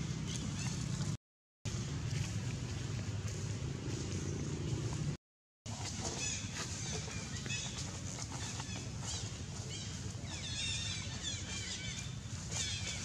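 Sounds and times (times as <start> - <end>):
small birds chirping: 0.0 - 1.2, 5.9 - 13.0
low outdoor rumble: 0.0 - 13.0.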